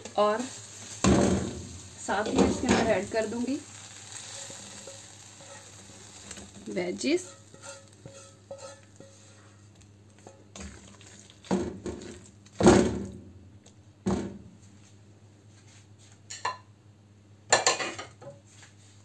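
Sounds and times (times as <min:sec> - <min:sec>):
utensils knocking and scraping pans: 0:01.0 - 0:03.5, 0:07.1 - 0:09.5.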